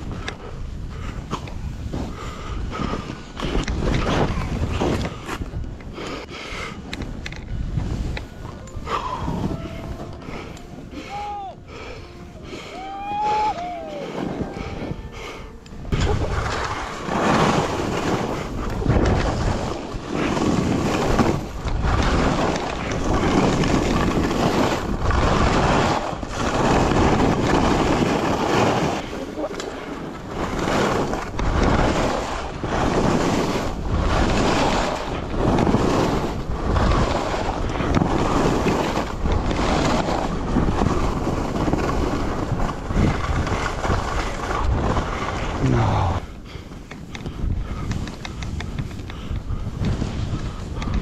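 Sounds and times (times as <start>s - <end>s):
wind buffeting microphone: 0.0s - 51.0s
skis hissing through snow: 14.0s - 46.2s.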